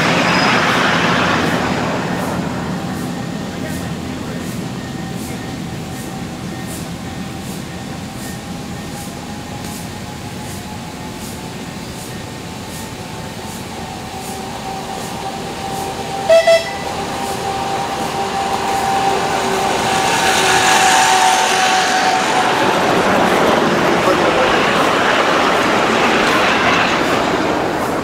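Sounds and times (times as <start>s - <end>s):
miniature locomotive motor drone: 0.0s - 28.0s
short horn toots: 16.3s - 16.9s.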